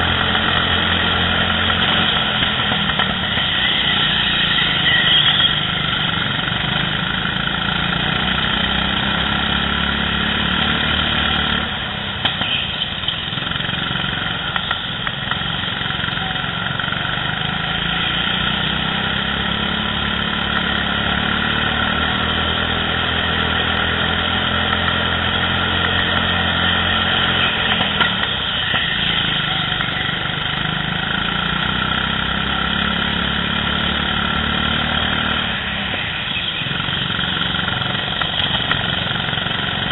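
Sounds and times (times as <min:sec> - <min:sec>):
go-kart engine revving: 0:00.0 - 0:12.2, 0:12.9 - 0:39.9.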